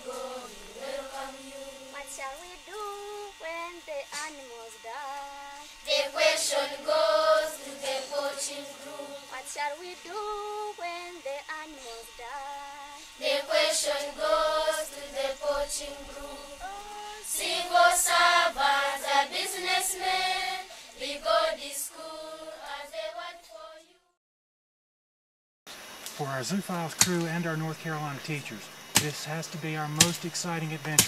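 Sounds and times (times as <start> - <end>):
children singing in chorus: 0.0 - 3.4, 5.9 - 11.1, 13.2 - 23.9.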